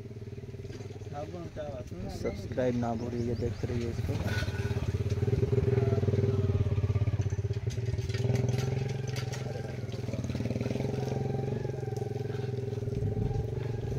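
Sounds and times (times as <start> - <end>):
engine running: 0.0 - 13.9.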